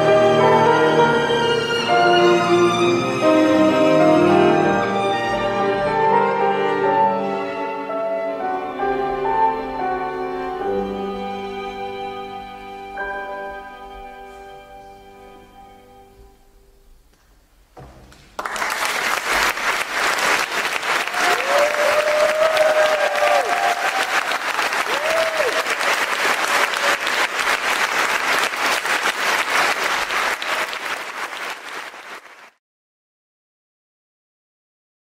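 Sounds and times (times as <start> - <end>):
audience applause: 18.4 - 32.6
crowd calling out: 21.0 - 25.9.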